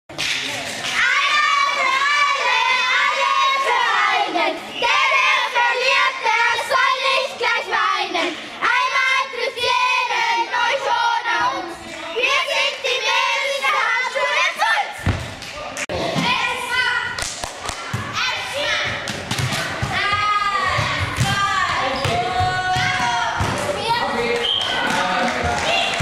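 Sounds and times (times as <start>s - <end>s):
girls singing a chant: 1.0s - 15.2s, 18.0s - 24.2s.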